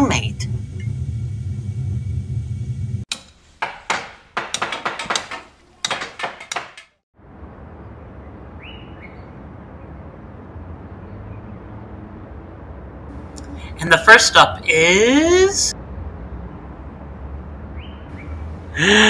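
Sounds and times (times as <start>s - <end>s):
low rumble: 0.0s - 3.1s
outdoor ambience hiss: 0.0s - 5.9s
hammer knocks and bangs: 3.1s - 7.0s
bird chirp: 8.6s - 9.4s, 17.8s - 18.4s.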